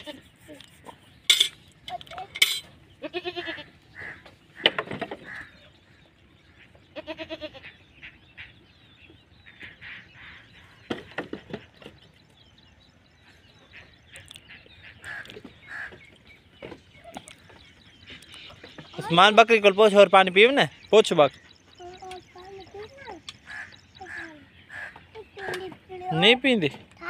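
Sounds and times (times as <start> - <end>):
goat bleating: 0.0 - 0.4, 3.0 - 4.2, 6.9 - 7.7
short knocks and clatter: 4.3 - 5.4, 10.8 - 12.2.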